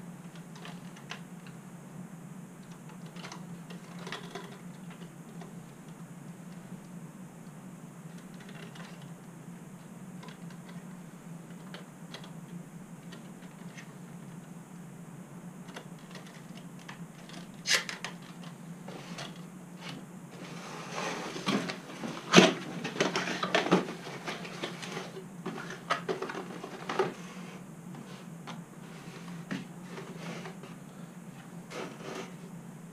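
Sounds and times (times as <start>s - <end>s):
steady low hum: 0.0s - 32.9s
clattering and rustling: 15.7s - 30.8s.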